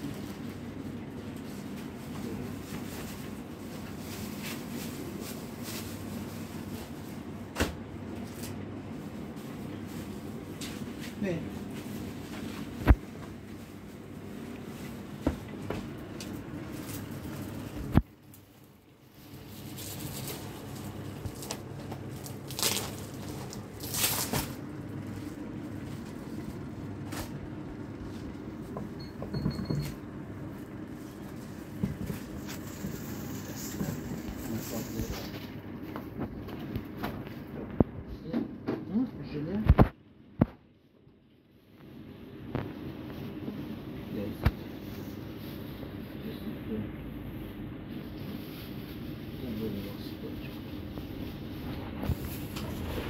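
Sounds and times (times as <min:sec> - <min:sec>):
steady low hum: 0:00.0 - 0:53.0
plastic bags rustling: 0:00.1 - 0:07.4, 0:15.8 - 0:27.4, 0:30.5 - 0:35.6.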